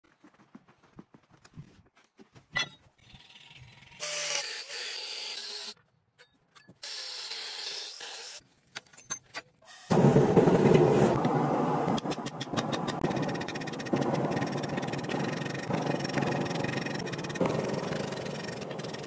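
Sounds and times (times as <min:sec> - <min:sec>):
angle grinder cutting steel: 0:03.9 - 0:05.8, 0:06.8 - 0:08.4, 0:12.0 - 0:19.0.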